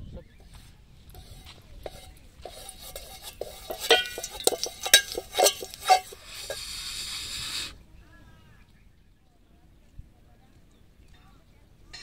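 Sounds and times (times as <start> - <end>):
stick knocking on metal pot: 1.1 - 6.7
air blown through blowpipe: 1.1 - 7.8.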